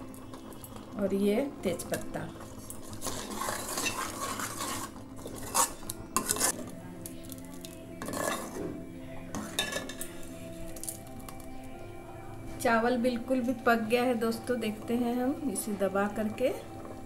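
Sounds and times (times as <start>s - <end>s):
spoon scraping and clinking pot: 2.5s - 6.7s, 7.3s - 11.1s.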